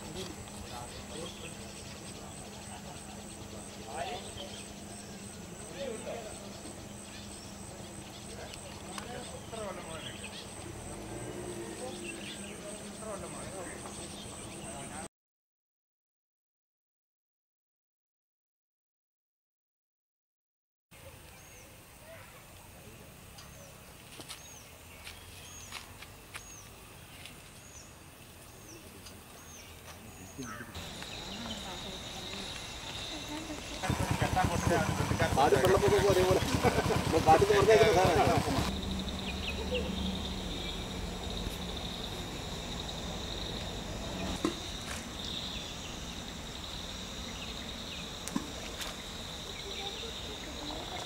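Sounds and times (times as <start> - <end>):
insects chirring: 0.0 - 15.1, 21.3 - 51.0
low rumble: 38.5 - 44.4.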